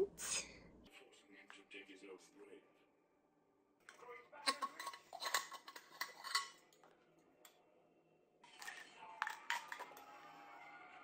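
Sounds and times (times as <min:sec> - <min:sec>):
metal bottle lid clinks and clicks: 0:04.5 - 0:06.6.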